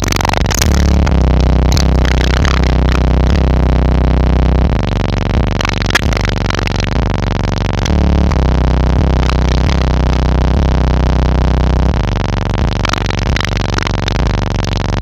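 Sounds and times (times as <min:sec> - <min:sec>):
bass-heavy music through subwoofers: 0:00.0 - 0:15.0.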